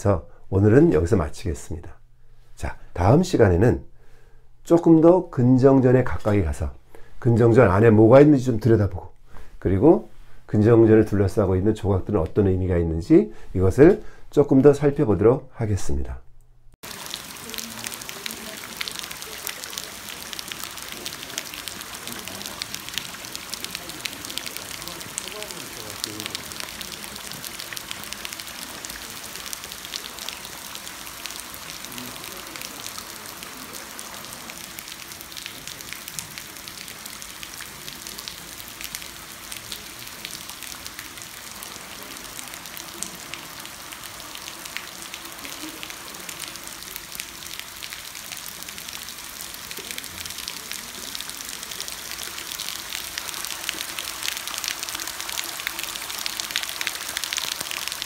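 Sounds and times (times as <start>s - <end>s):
rain on stone: 16.8s - 58.0s.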